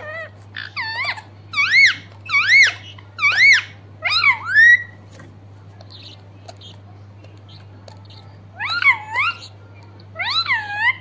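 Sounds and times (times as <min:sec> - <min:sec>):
parakeet calling: 0:00.0 - 0:05.0, 0:05.8 - 0:11.0.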